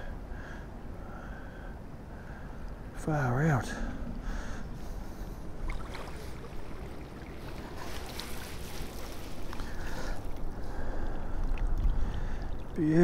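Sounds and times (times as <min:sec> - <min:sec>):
wind rumbling on microphone: 0:01.8 - 0:13.0
river water lapping: 0:03.8 - 0:13.0.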